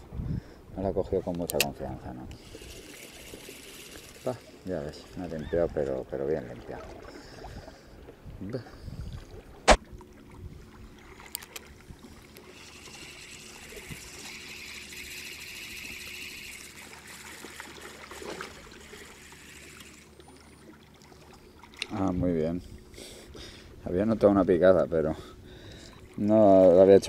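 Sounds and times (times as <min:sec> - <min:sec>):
sharp click: 0:01.3 - 0:02.4
fishing reel cranking: 0:01.4 - 0:05.9, 0:12.3 - 0:20.2.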